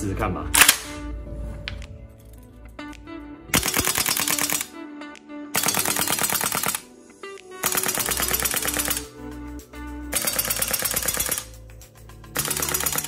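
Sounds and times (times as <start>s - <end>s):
background music: 0.0s - 13.0s
airsoft rifle firing full auto: 3.6s - 4.7s, 5.6s - 6.8s, 7.6s - 9.1s, 10.1s - 11.6s, 12.4s - 13.0s.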